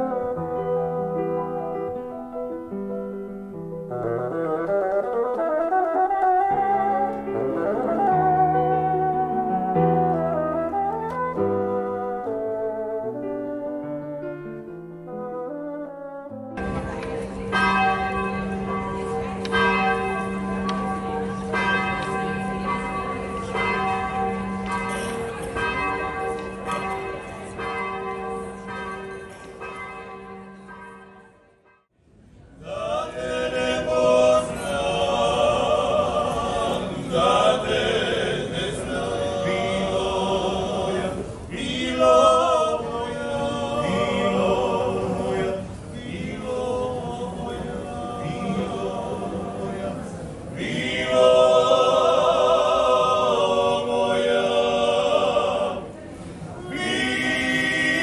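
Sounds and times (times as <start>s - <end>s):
church bells ringing: 16.6s - 31.9s
male voices singing a cappella: 32.6s - 56.0s, 56.6s - 58.0s.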